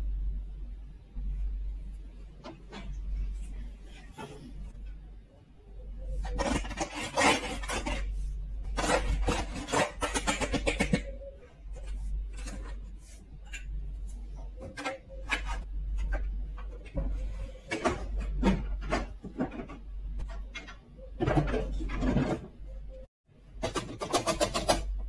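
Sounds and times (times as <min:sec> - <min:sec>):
plastic toy pieces scraping and clicking: 0:06.2 - 0:13.7.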